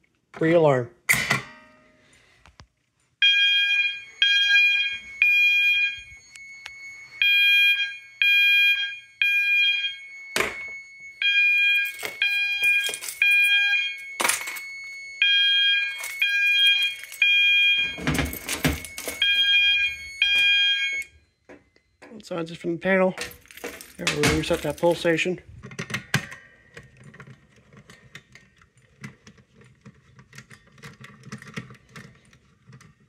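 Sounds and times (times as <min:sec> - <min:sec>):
fire alarm sounder blasts: 0:03.2 - 0:22.0, 0:24.0 - 0:25.4
faint steady high tone: 0:03.3 - 0:23.4.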